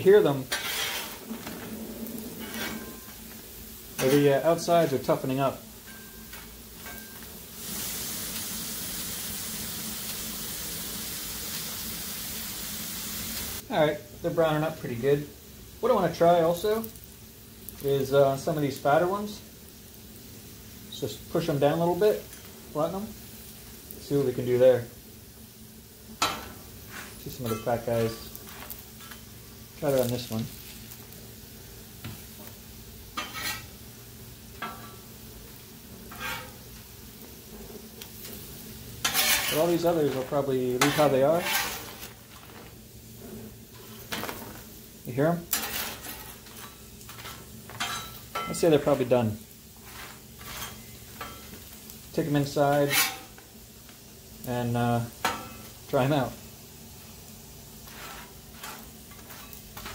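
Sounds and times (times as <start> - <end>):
metal spatula scraping griddle: 0.0 - 3.4, 4.0 - 7.2, 26.2 - 30.3, 33.2 - 33.8, 36.0 - 36.7, 37.5 - 44.6, 45.5 - 49.1, 49.8 - 51.6, 52.2 - 53.4, 55.2 - 55.7, 57.8 - 59.9
plantain sizzling in oil: 0.0 - 59.9.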